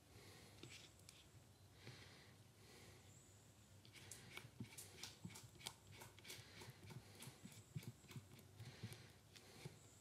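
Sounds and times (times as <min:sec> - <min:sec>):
stirring stick scraping a cup: 0:03.9 - 0:08.6.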